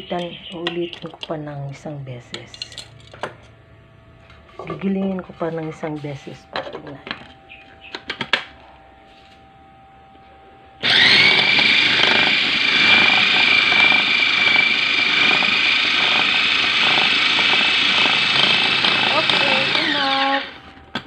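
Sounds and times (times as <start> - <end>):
food chopper motor whining: 10.8 - 21.0.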